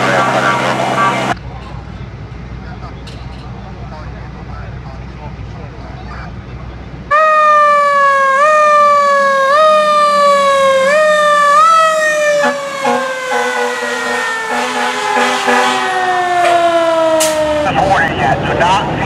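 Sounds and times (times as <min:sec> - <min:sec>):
fire truck siren wailing: 0:00.0 - 0:01.4, 0:07.1 - 0:19.0
short low horn blasts: 0:12.4 - 0:17.4.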